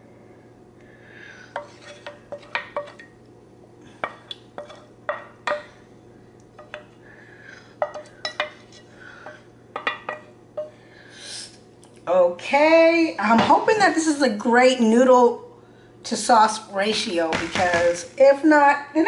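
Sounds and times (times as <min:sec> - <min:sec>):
utensil clinking on metal bowl: 0:07.8 - 0:10.8.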